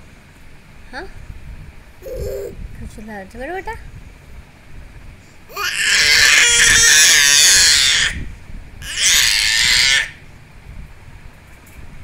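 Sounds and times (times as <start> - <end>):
baby screaming: 2.0 - 2.6, 5.5 - 10.2.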